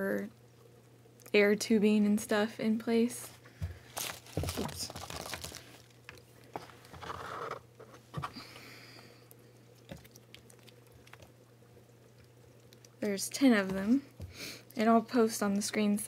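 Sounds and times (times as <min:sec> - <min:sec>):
packet rustling: 0:03.6 - 0:07.9.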